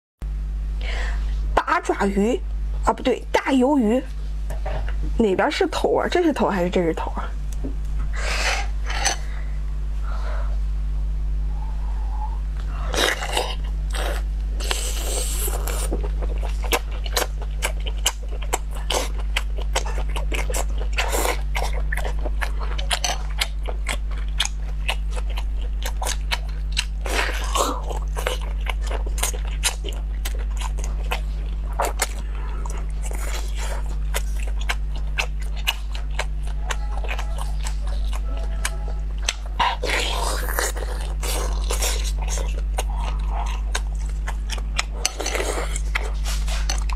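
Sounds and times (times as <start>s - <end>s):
low hum: 0.2s - 46.9s
biting and chewing: 12.6s - 46.9s.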